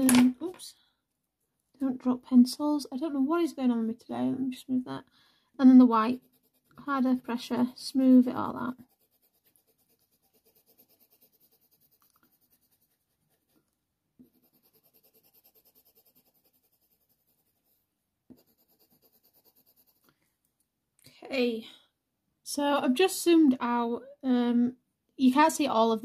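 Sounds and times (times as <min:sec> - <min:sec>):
pencil scratching on paper: 0:05.8 - 0:20.1.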